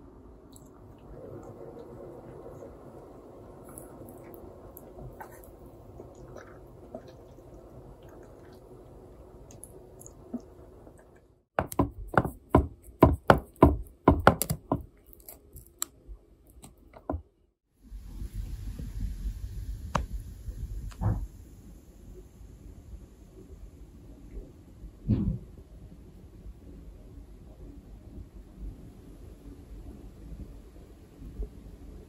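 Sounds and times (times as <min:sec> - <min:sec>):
low room hum: 0:00.0 - 0:11.5.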